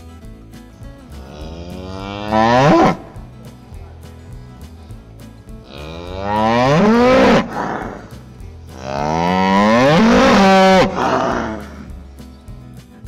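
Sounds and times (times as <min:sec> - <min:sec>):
faint background music: 0:00.0 - 0:13.0
cattle mooing: 0:01.2 - 0:03.1, 0:05.7 - 0:08.1, 0:08.8 - 0:11.9.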